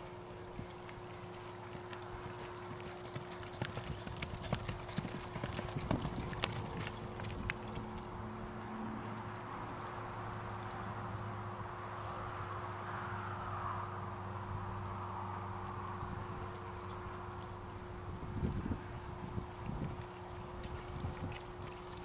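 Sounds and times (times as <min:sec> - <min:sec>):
hoofbeats on dirt: 0:00.0 - 0:08.2, 0:15.6 - 0:22.0.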